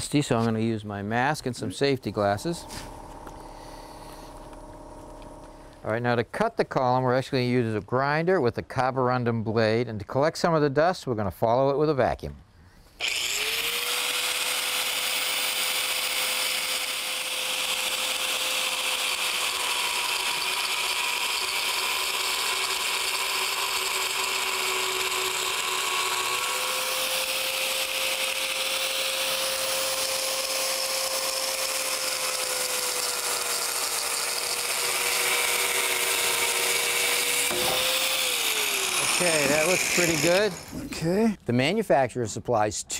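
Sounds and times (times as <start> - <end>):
vacuum running: 2.1 - 5.9, 35.0 - 41.0
angle grinder cutting: 13.0 - 41.1.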